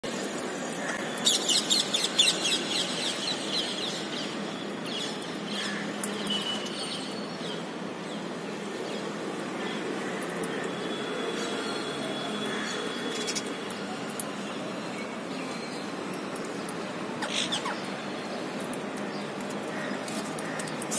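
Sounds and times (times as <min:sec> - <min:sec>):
parakeets screeching: 0:17.2 - 0:17.9.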